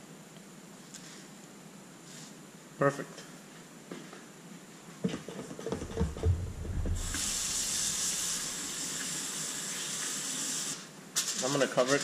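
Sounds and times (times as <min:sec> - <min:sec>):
handling knocks: 0:05.5 - 0:07.4
kitchen tap running water: 0:06.2 - 0:10.7.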